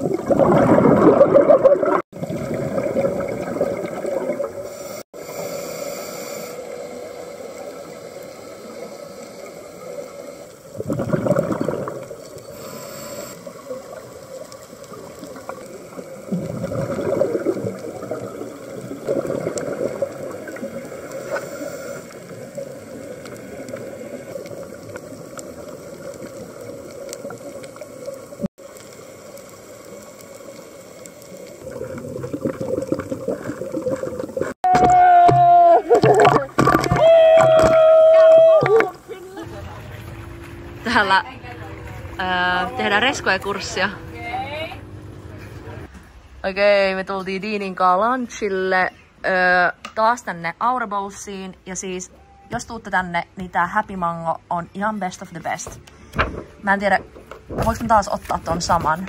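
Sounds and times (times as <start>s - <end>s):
gurgling regulator bubbles: 0.0s - 4.8s, 6.7s - 34.6s, 35.9s - 37.8s
gushes of exhaled bubbles: 0.0s - 4.8s, 10.6s - 12.2s, 13.5s - 28.5s, 31.3s - 34.6s, 35.9s - 39.1s
steady underwater hiss: 2.2s - 34.6s.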